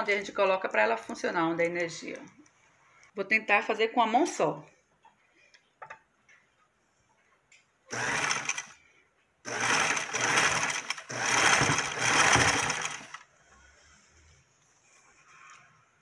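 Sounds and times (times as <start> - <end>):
sewing machine stitching: 7.9 - 8.8, 9.5 - 13.3.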